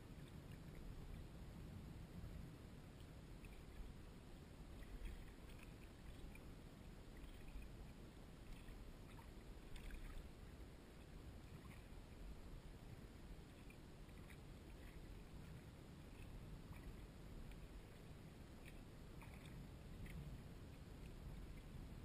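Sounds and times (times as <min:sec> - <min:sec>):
paddle splashing in water: 0:04.8 - 0:06.5, 0:08.4 - 0:10.3, 0:13.5 - 0:20.2.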